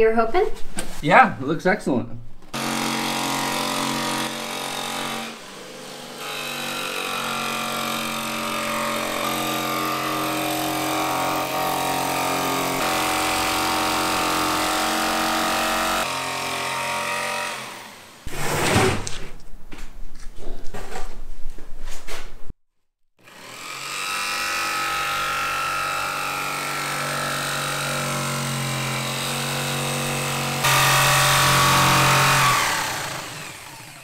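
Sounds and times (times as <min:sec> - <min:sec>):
jigsaw cutting fiberglass: 0:02.6 - 0:18.3, 0:23.2 - 0:34.0.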